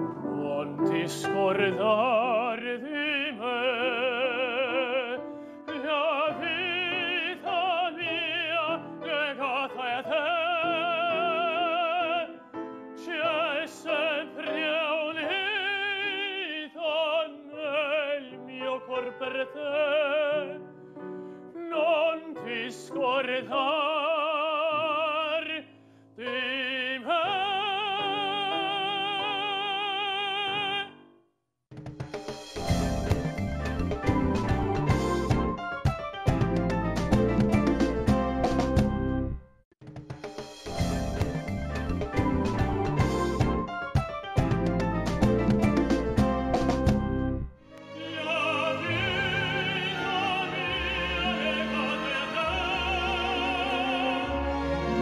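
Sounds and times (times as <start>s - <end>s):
tenor singing opera: 0.0s - 20.8s, 21.4s - 31.0s, 47.8s - 55.0s
piano accompaniment: 0.0s - 31.0s, 32.0s - 55.0s
singer breathing: 5.2s - 5.7s, 20.7s - 21.6s, 25.7s - 26.2s.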